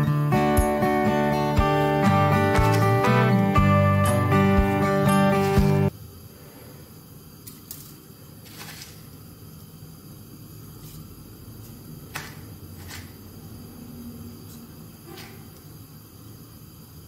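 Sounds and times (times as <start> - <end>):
gas burner noise: 0.0 - 17.0.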